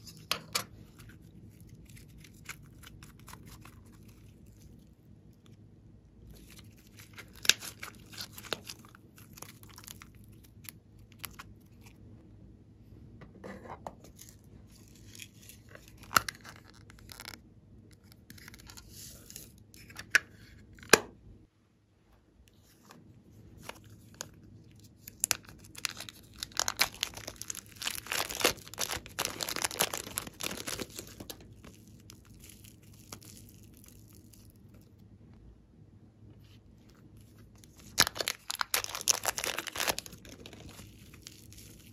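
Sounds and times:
hands squishing clay and slime: 0:00.0 - 0:05.6, 0:06.3 - 0:12.0, 0:23.5 - 0:34.9, 0:36.9 - 0:41.9
sticky crackling and tearing: 0:06.4 - 0:11.9, 0:25.0 - 0:34.9, 0:37.3 - 0:41.9.

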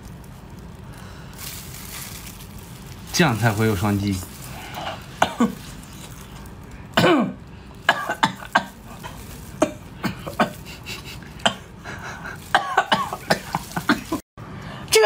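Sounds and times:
person chewing: 0:04.3 - 0:06.9, 0:07.7 - 0:14.2
person coughing: 0:04.8 - 0:05.7, 0:07.0 - 0:14.2.

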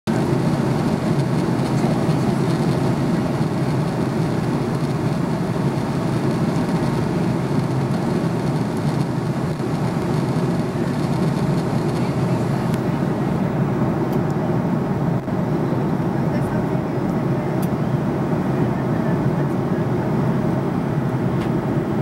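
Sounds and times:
engine drone: 0:00.1 - 0:22.0.

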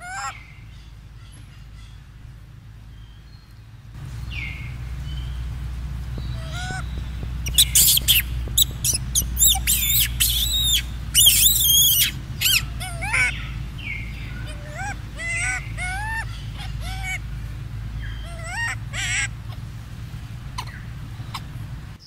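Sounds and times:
baby monkey shrieking: 0:00.0 - 0:00.4, 0:06.3 - 0:17.2, 0:18.0 - 0:19.6, 0:20.6 - 0:21.5
low steady rumble: 0:00.0 - 0:22.0.

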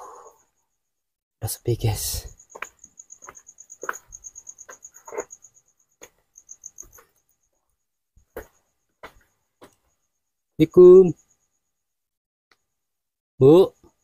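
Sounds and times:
cricket chirping: 0:00.0 - 0:14.0
footsteps on stone path: 0:02.0 - 0:07.2, 0:08.2 - 0:10.0.

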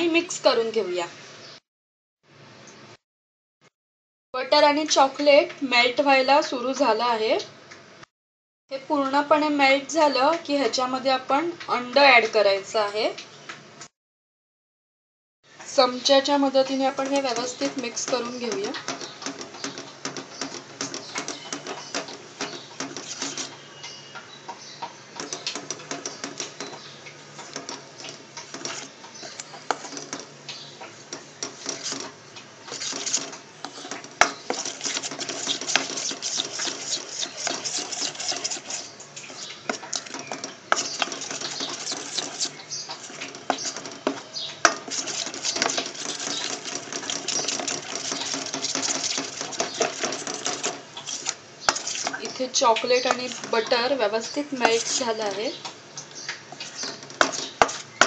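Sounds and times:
spoon scraping metal bowl: 0:16.7 - 0:24.0, 0:27.4 - 0:30.3, 0:31.1 - 0:55.6, 0:56.5 - 0:58.0.

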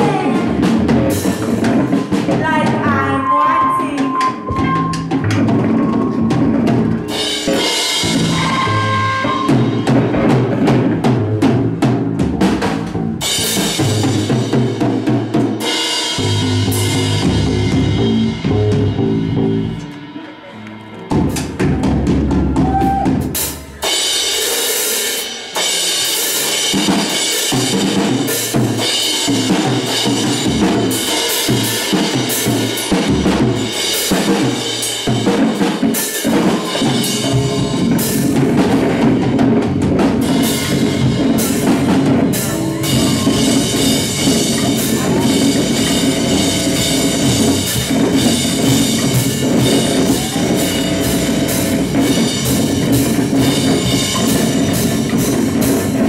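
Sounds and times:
electric bass guitar: 0:00.0 - 0:23.8, 0:36.3 - 0:56.0
drum kit pounding: 0:00.0 - 0:56.0
noise rock band playing: 0:00.0 - 0:56.0.

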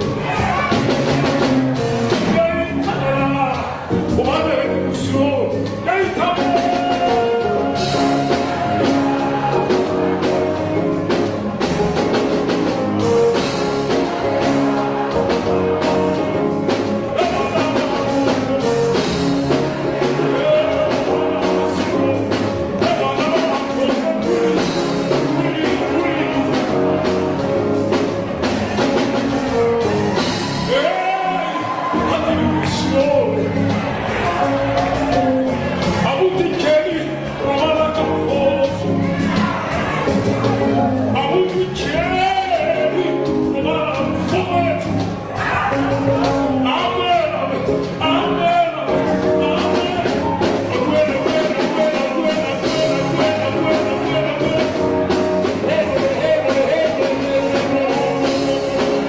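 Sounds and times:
electric bass guitar: 0:00.0 - 0:59.0
keyboard: 0:00.0 - 0:59.0
man singing into a microphone: 0:02.2 - 0:09.9, 0:17.1 - 0:19.2, 0:20.1 - 0:27.2, 0:35.9 - 0:39.0, 0:41.1 - 0:45.0, 0:45.6 - 0:59.0.

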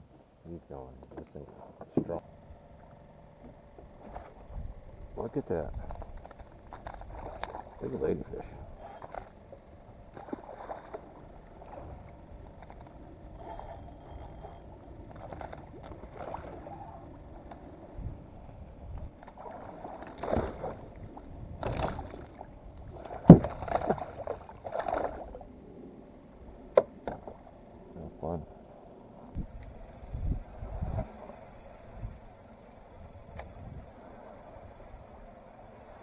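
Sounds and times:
water lapping against kayak hull: 0:01.1 - 0:27.5
fish splashing and knocks: 0:05.8 - 0:07.8, 0:10.1 - 0:12.0, 0:19.0 - 0:25.4.

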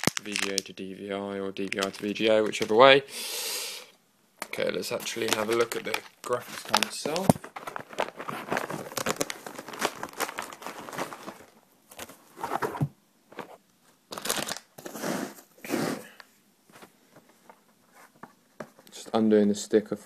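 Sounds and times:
packaging rustling and tearing: 0:00.0 - 0:00.6, 0:01.6 - 0:02.8, 0:04.8 - 0:15.4
packaging crinkling clicks: 0:00.0 - 0:00.7, 0:01.6 - 0:02.8, 0:05.0 - 0:12.1, 0:14.1 - 0:14.8.

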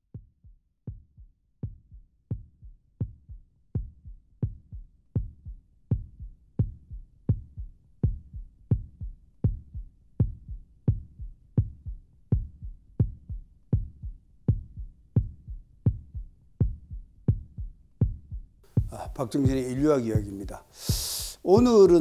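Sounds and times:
pulsing beat of low thumps: 0:00.0 - 0:22.0.

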